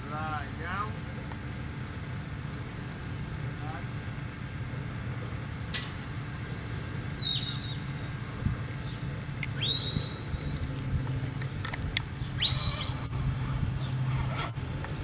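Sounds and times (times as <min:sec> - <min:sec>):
low steady hum: 0:00.0 - 0:15.0
herding whistle: 0:09.6 - 0:10.9, 0:12.4 - 0:13.4.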